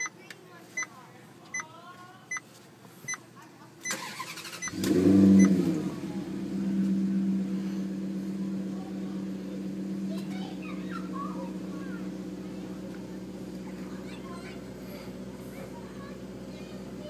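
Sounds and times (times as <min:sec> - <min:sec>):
starter motor cranking: 0:03.9 - 0:05.8
car engine revving and idling: 0:04.0 - 0:17.0
dashboard warning tone: 0:04.6 - 0:05.7.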